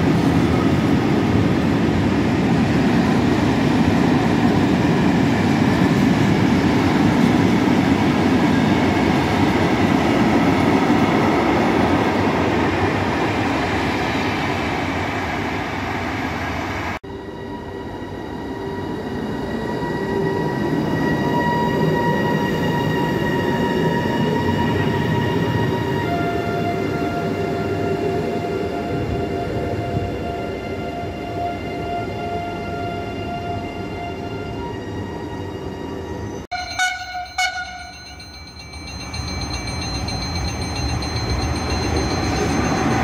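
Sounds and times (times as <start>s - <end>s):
electric locomotive whine: 0.0s - 43.0s
freight wagons rattling on rails: 38.1s - 43.0s.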